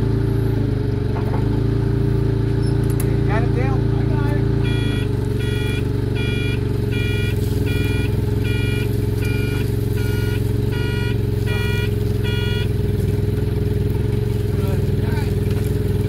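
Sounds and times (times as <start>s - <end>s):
forklift engine running: 0.0s - 16.0s
backup alarm beeping: 4.6s - 13.0s.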